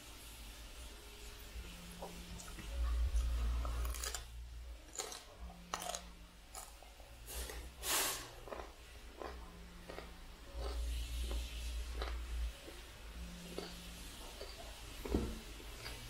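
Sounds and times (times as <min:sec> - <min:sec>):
broccoli crunching: 0:02.4 - 0:06.8, 0:08.3 - 0:12.8, 0:13.4 - 0:14.7.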